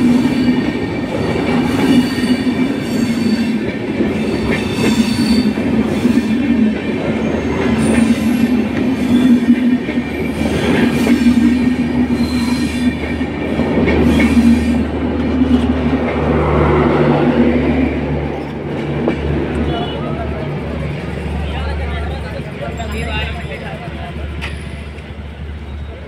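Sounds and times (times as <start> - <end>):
train wheels rumbling on rail: 0.0 - 26.0
wheel squeals: 12.1 - 13.1.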